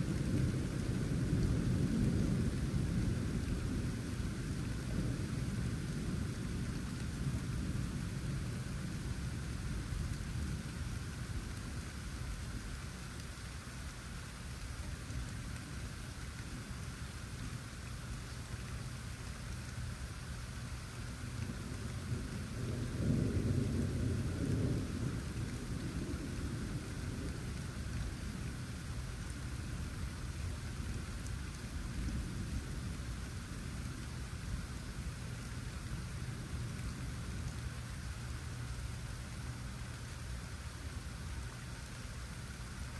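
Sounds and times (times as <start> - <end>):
low thunder rumbling: 0.0 - 42.9
steady rain falling: 0.0 - 42.9.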